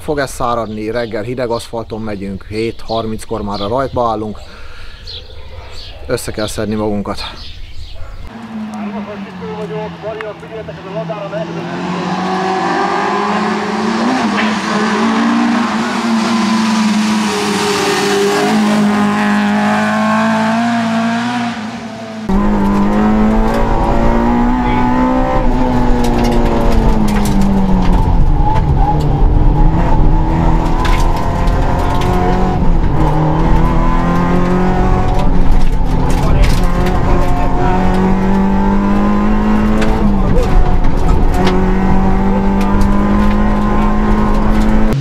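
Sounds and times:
rally car engine revving: 8.3 - 45.0
sharp clicks and knocks: 25.6 - 29.2, 30.4 - 45.0.

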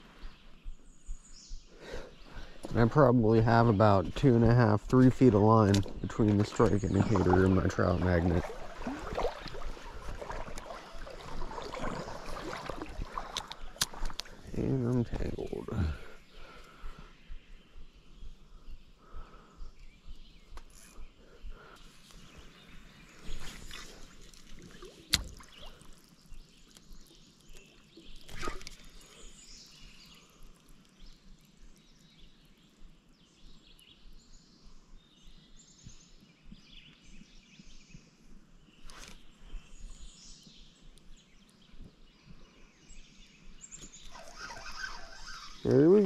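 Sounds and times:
creek ambience: 0.0 - 33.6, 43.0 - 46.0
faint bird chirps: 10.2 - 46.0.

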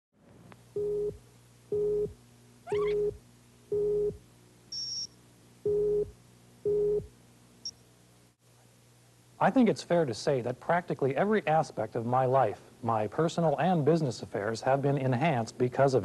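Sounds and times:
low hum: 0.7 - 5.0, 5.6 - 7.8
countdown beeps: 0.8 - 4.2, 5.7 - 6.1, 6.7 - 7.1
rising chirp: 2.7 - 6.1.

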